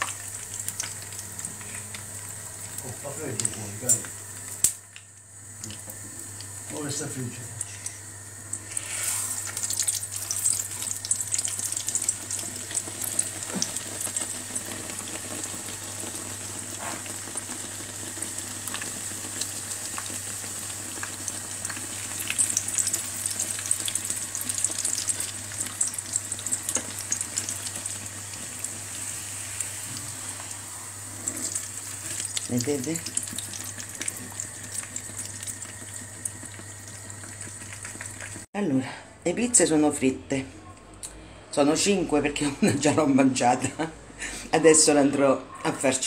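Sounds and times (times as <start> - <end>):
dough frying in oil: 0.0 - 38.5.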